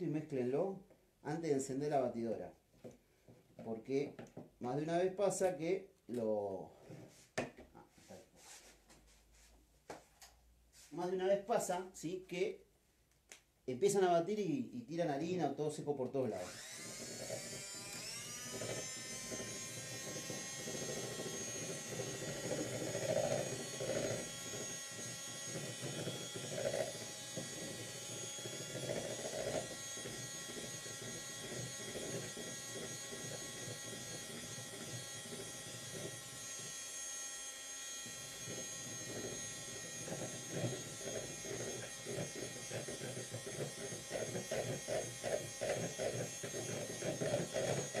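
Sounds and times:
electric hand mixer whipping cream: 16.1s - 48.0s.

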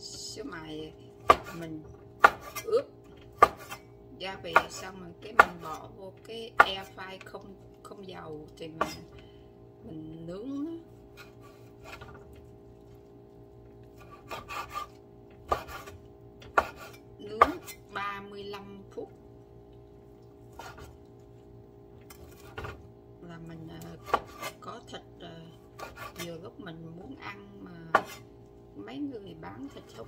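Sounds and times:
knife chopping on wooden board: 1.2s - 1.6s, 2.2s - 2.6s, 3.4s - 3.8s, 4.5s - 5.8s, 6.6s - 6.9s, 8.8s - 9.0s, 14.0s - 17.8s, 24.0s - 24.6s, 25.8s - 26.3s, 27.9s - 28.2s.

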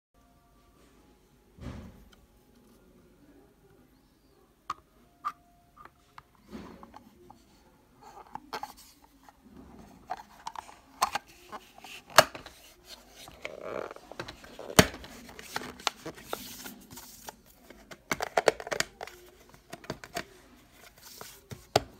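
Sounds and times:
hand rubbing plastic: 5.2s - 21.9s
plastic clicks and taps: 14.1s - 20.3s.

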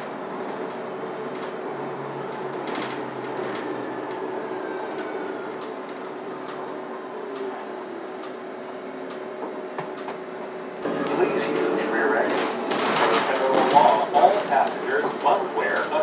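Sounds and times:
bus drive hum with whine: 0.0s - 16.0s.

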